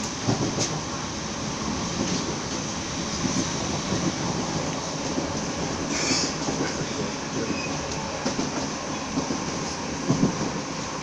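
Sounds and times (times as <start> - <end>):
train wheels rumbling on rails: 0.0 - 11.0
brief high hiss: 5.9 - 6.4.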